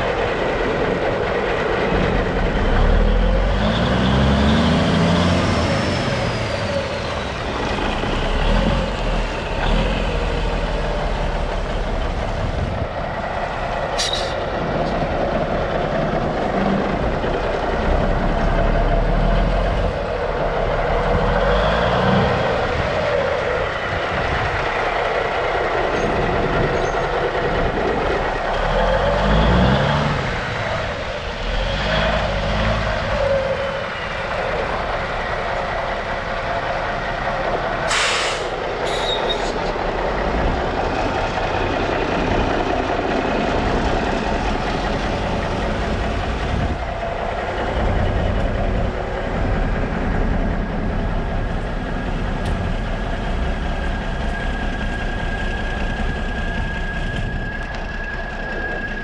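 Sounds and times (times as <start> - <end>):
diesel truck idling: 0.0 - 59.0
air hissing: 37.9 - 39.5.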